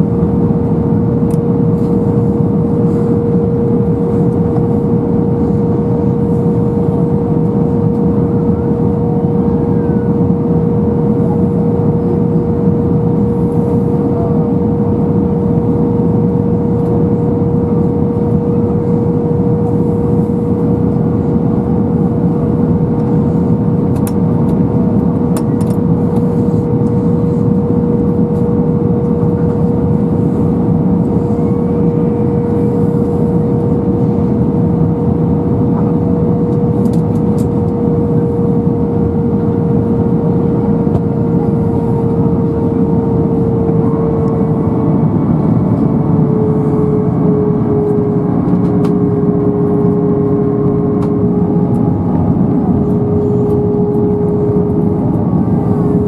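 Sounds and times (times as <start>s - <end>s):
jet engine and airflow drone: 0.0s - 56.0s
mid-pitched cabin hum: 0.0s - 56.0s.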